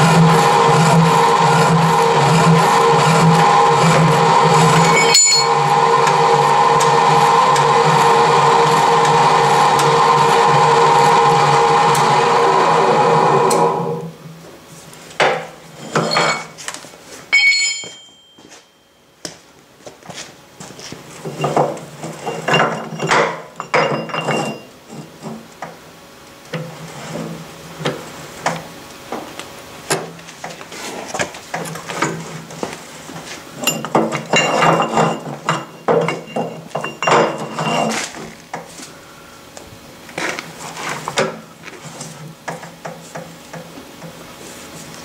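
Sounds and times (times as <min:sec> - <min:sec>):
power hacksaw running: 0:00.0 - 0:13.8
metallic clanks and knocks: 0:17.3 - 0:18.4, 0:33.6 - 0:38.1.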